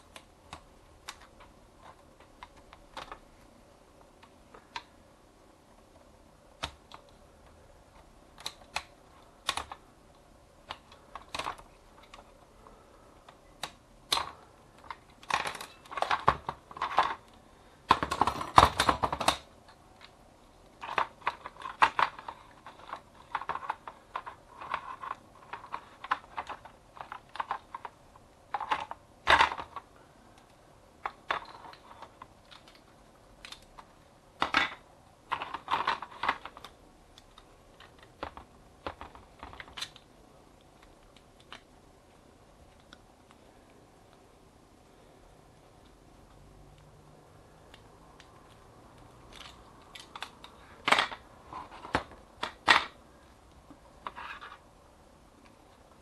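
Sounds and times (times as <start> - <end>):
plastic and metal parts clicking: 0.0 - 3.3, 6.6 - 9.8, 10.6 - 12.5, 13.2 - 41.7, 47.7 - 53.0
parts clattering: 14.1 - 20.2, 20.8 - 30.0, 31.0 - 40.0, 49.3 - 53.0.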